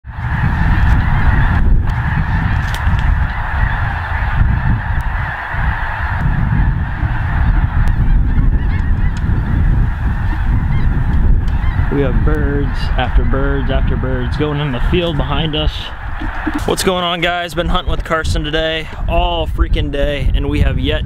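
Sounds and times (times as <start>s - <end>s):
geese calling: 0.1s - 19.1s.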